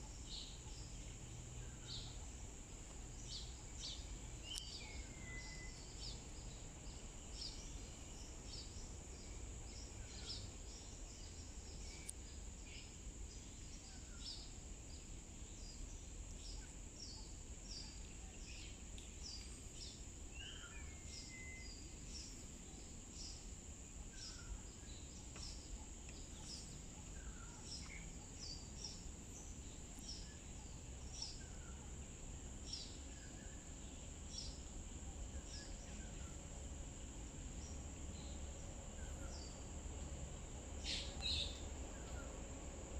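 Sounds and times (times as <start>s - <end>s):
bird chirps: 3.2s - 6.6s, 40.8s - 42.3s.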